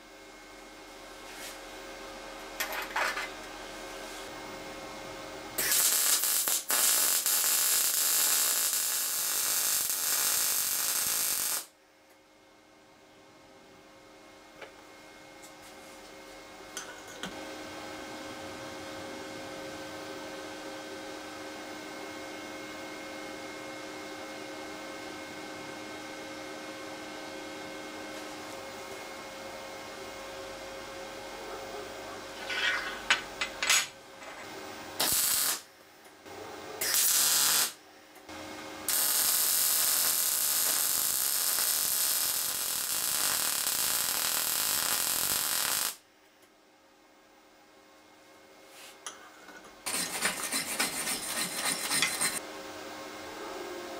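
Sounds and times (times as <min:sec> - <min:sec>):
welder humming at idle: 0:02.2 - 0:11.8, 0:35.0 - 0:35.7, 0:36.3 - 0:46.0
welding arc hissing: 0:05.6 - 0:11.7, 0:35.0 - 0:35.7, 0:36.8 - 0:37.8, 0:38.9 - 0:46.0, 0:49.8 - 0:52.4.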